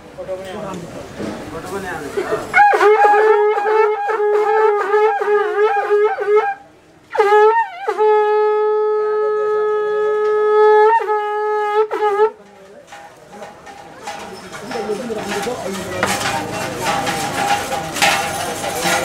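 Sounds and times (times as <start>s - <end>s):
solo wind instrument melody: 2.6s - 12.4s.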